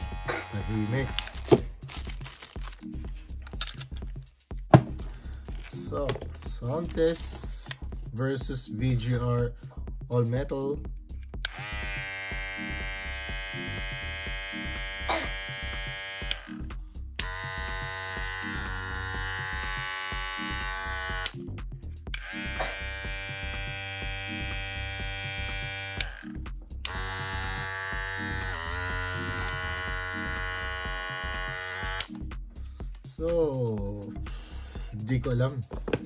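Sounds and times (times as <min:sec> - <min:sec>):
hair clipper motor humming: 0:00.0 - 0:01.7, 0:11.4 - 0:16.6, 0:17.2 - 0:21.4, 0:22.1 - 0:32.1
background music: 0:00.0 - 0:36.0.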